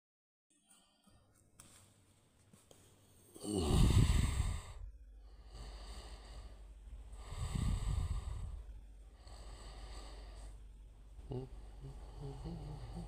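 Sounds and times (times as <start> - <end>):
low steady hum: 0.8 - 13.0
person breathing out heavily: 3.4 - 10.6.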